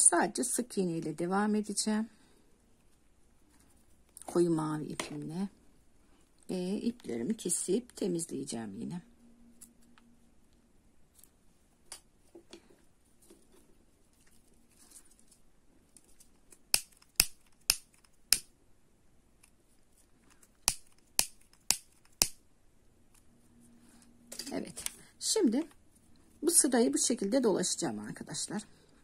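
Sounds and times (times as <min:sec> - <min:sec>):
scissors snipping: 0:20.6 - 0:22.4.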